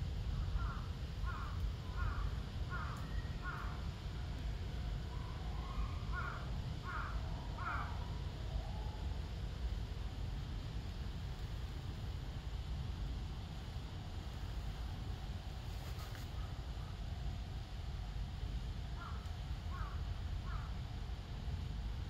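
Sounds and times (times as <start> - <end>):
low background rumble: 0.0 - 22.0
crow cawing: 0.6 - 3.9, 6.1 - 8.1, 19.0 - 20.8.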